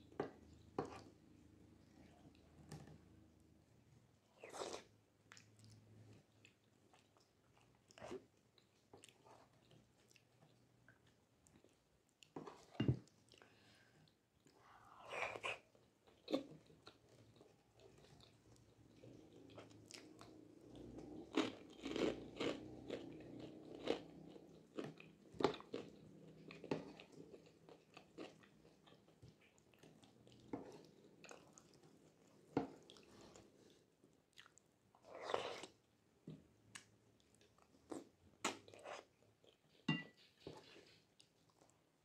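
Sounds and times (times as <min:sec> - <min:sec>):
person chewing food: 0:04.4 - 0:35.9, 0:36.7 - 0:41.8.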